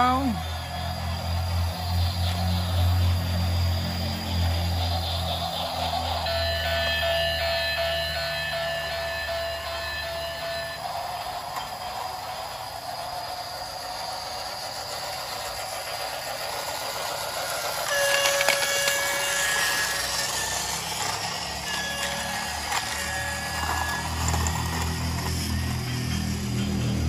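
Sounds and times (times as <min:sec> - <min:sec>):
toy train motor whirring: 0:00.0 - 0:27.0
buzzy electronic toy horn: 0:21.6 - 0:24.0.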